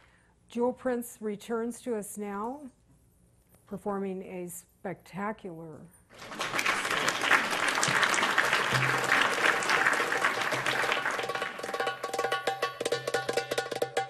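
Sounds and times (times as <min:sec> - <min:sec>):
audience applause: 0:06.2 - 0:12.1
belly-dance music with fast drums: 0:10.2 - 0:14.0.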